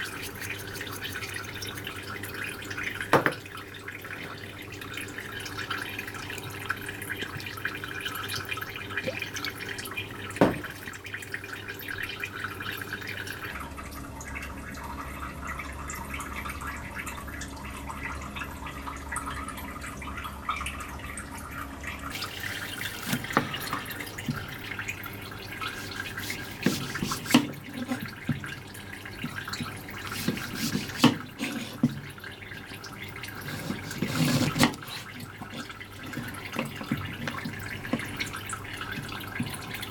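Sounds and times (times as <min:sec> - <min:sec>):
background hiss and hum: 0:00.0 - 0:39.9
knife knocking on cutting board: 0:10.4 - 0:10.7.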